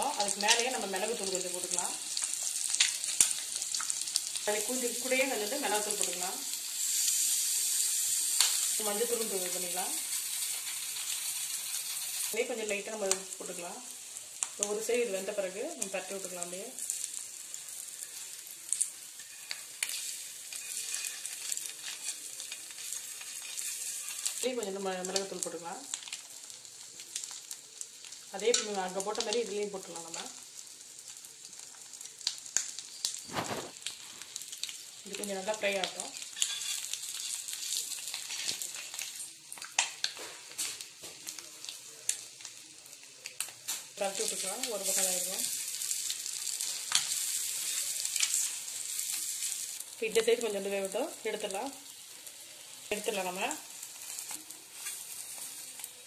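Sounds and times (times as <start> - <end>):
eggs sizzling in oil: 0.0 - 56.0
metal spatula scraping griddle: 19.2 - 22.2, 23.0 - 24.4, 36.4 - 37.4.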